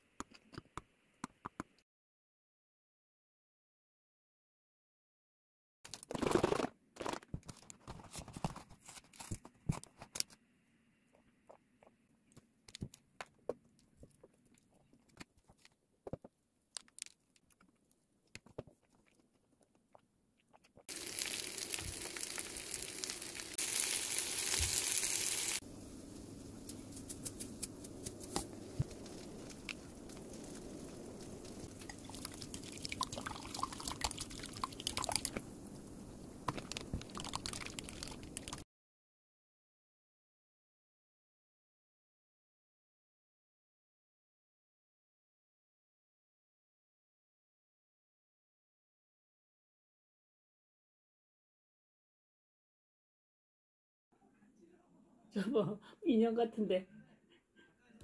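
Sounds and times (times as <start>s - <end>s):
plastic wrapper crinkling: 16.7s - 17.7s, 20.9s - 25.6s.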